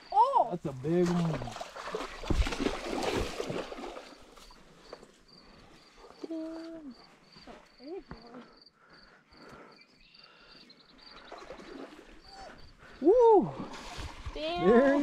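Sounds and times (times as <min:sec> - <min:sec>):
cricket chirping: 0:00.0 - 0:14.8.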